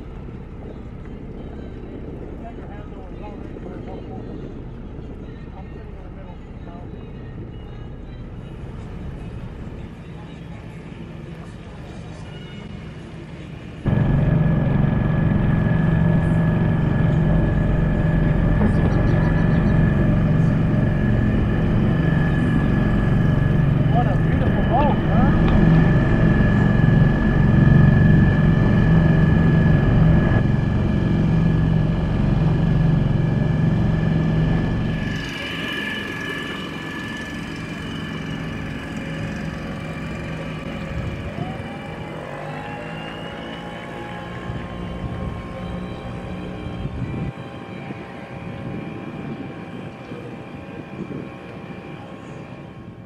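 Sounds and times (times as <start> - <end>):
low rumble: 13.8 - 41.5
high whine: 13.8 - 53.0
outboard motor running: 13.9 - 43.5.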